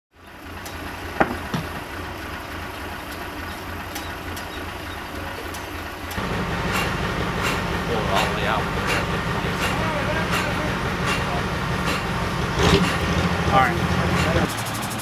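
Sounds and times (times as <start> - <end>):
truck engine rumbling: 0.1 - 15.0
sharp knocks: 1.2 - 1.8, 6.7 - 13.2.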